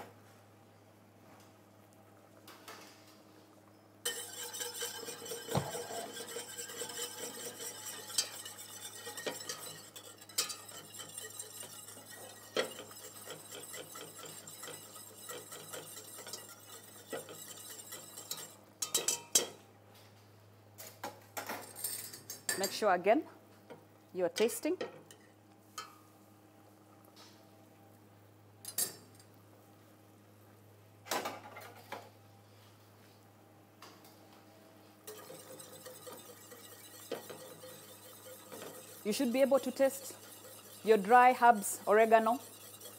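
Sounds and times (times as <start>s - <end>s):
whisk rattling in a metal pot: 4.0s - 19.5s, 35.0s - 42.9s.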